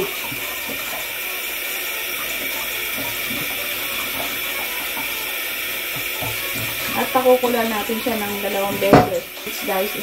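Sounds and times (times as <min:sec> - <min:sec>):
tap running into metal sink: 0:00.0 - 0:01.2, 0:02.2 - 0:05.2, 0:05.9 - 0:09.4
water splashing over meat: 0:00.0 - 0:10.0.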